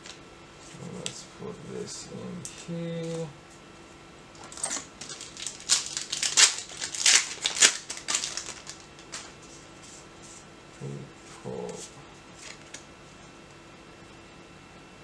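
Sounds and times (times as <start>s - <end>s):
foil wrapper crinkling: 4.4s - 9.4s, 12.4s - 12.8s.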